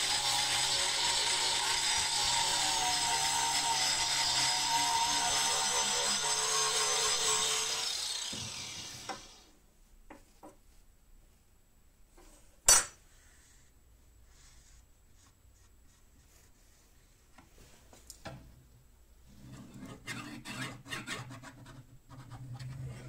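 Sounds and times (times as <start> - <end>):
angle grinder grinding metal: 0.0 - 9.5.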